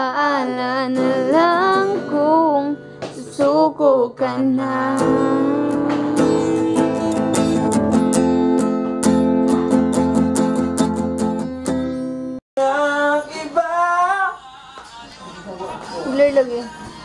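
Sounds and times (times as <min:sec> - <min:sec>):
acoustic guitar strumming: 0:00.0 - 0:13.8
music with sliding wavering melody: 0:01.0 - 0:12.4.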